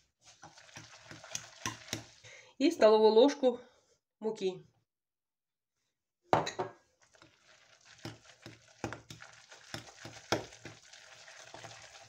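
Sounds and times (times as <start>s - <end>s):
fork scraping wet batter: 0.2s - 2.2s, 7.1s - 10.9s.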